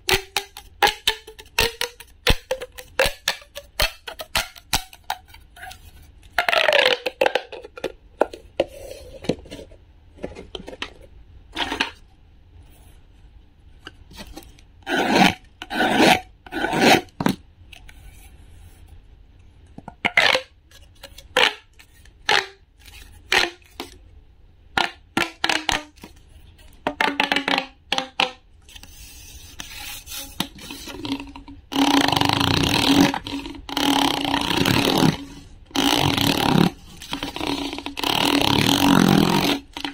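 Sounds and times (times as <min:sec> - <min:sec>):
plastic tubes crackling and clicking: 0:00.0 - 0:08.4, 0:19.8 - 0:24.0, 0:24.8 - 0:28.9, 0:30.2 - 0:39.9
wooden stick scraping plastic ridges: 0:00.0 - 0:11.0, 0:14.1 - 0:19.0, 0:28.6 - 0:39.9.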